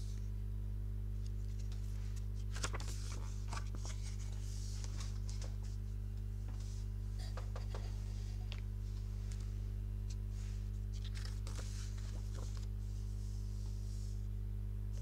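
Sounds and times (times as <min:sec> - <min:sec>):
steady low hum: 0:00.0 - 0:15.0
page turning: 0:01.2 - 0:05.8, 0:06.5 - 0:12.8
book pages rustling: 0:01.2 - 0:14.1.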